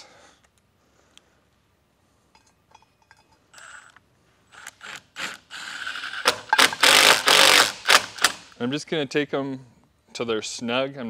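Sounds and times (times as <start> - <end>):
impact driver driving screws: 4.5 - 8.6.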